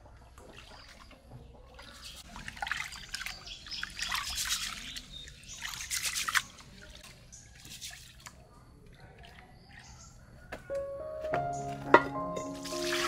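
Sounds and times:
water splashing and trickling: 0.0s - 10.4s, 11.6s - 13.0s.

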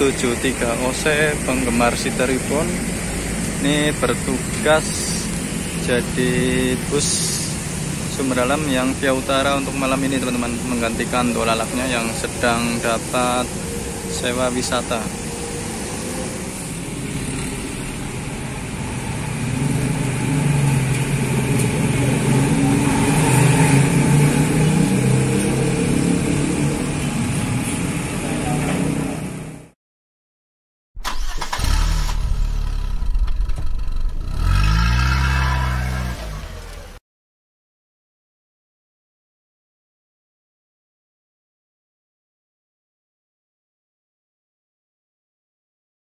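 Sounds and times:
bus diesel engine pulling away: 0.0s - 29.6s, 31.1s - 37.0s.

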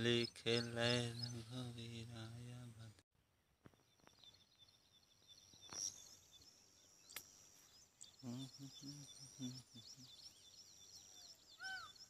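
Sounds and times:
small birds chirping: 0.0s - 12.0s
high insect buzz: 4.0s - 11.8s.

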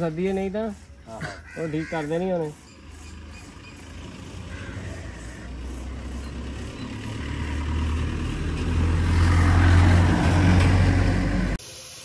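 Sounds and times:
pickup truck driving past: 2.8s - 11.6s.

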